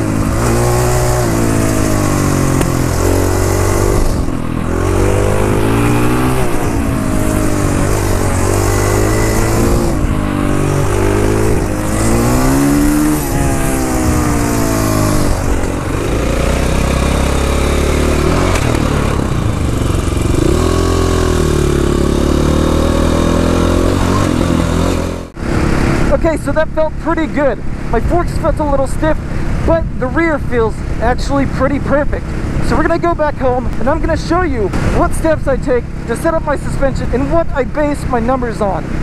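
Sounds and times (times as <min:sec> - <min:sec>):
wind rushing: 0:00.0 - 0:26.3
motorcycle engine revving: 0:00.0 - 0:39.0.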